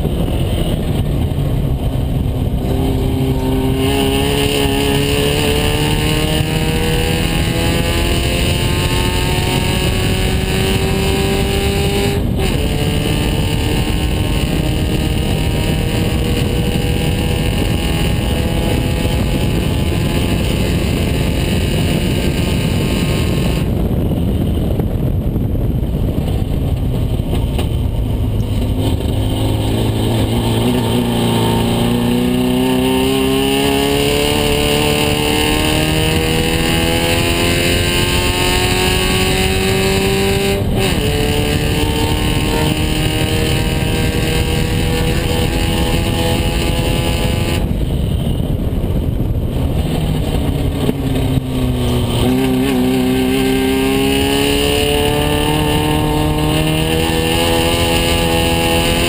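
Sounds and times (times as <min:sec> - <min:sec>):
race car engine revving: 0:00.0 - 0:24.0, 0:26.4 - 0:48.6, 0:49.4 - 0:59.0.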